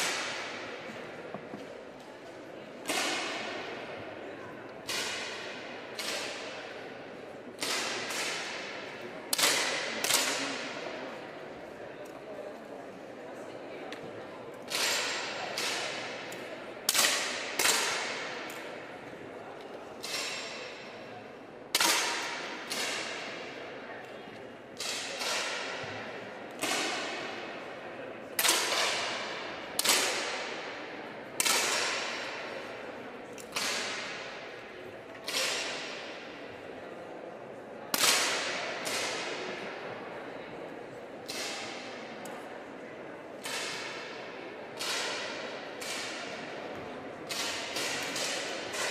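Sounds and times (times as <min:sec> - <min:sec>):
air pistol cracks with echo: 0:04.8 - 0:06.7, 0:07.6 - 0:10.7, 0:14.7 - 0:18.8, 0:20.0 - 0:20.9, 0:21.7 - 0:23.6, 0:28.4 - 0:30.8, 0:31.4 - 0:32.5, 0:33.4 - 0:34.5, 0:35.2 - 0:36.2, 0:37.9 - 0:39.6, 0:41.2 - 0:42.4, 0:43.4 - 0:44.2, 0:44.8 - 0:46.5, 0:47.3 - 0:48.9.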